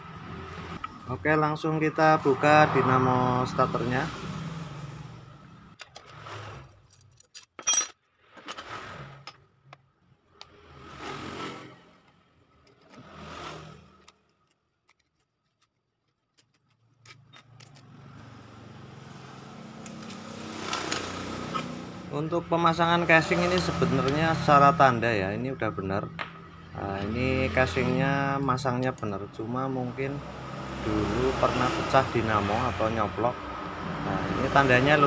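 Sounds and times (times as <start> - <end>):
rustling scraping handling noises: 10.8 - 18.4.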